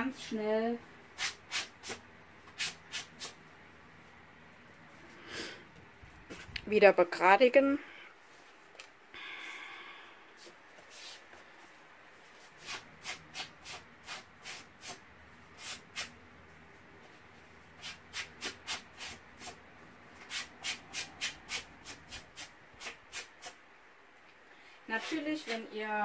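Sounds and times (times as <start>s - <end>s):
sanding block rubbing paper: 1.2s - 2.0s, 2.6s - 3.4s, 17.8s - 19.6s, 20.2s - 23.6s.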